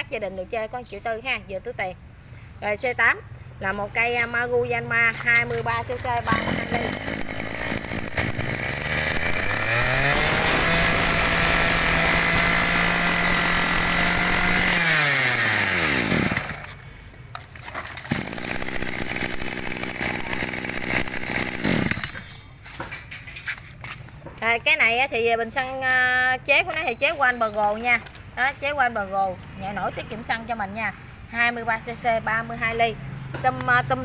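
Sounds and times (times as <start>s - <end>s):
brush cutter engine idling: 5.8s - 16.8s, 17.6s - 22.4s
brush cutter engine revving: 6.0s - 16.8s, 18.0s - 22.3s.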